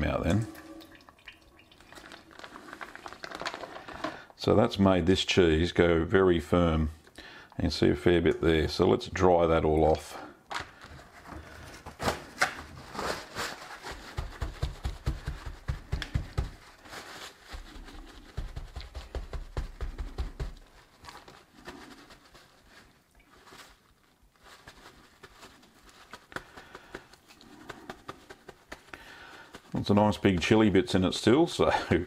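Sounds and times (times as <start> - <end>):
rustling paper: 1.8 - 4.2, 10.8 - 31.2
paper towel patting cheese: 11.4 - 32.0.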